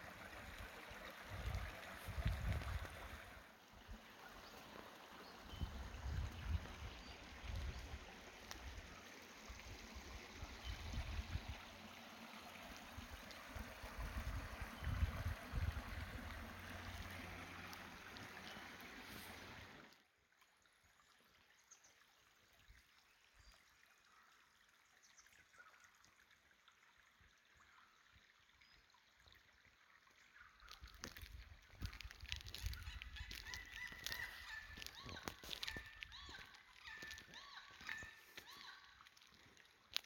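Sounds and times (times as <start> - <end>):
creek water running over rocks: 0.0 - 40.0
wind rumble on microphone: 1.3 - 3.3, 5.6 - 8.0, 10.4 - 11.6, 13.6 - 16.5.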